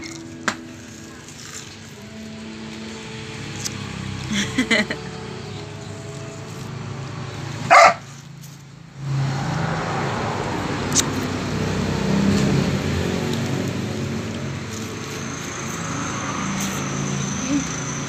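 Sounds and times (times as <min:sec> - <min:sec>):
dog barking: 0:07.7 - 0:08.1.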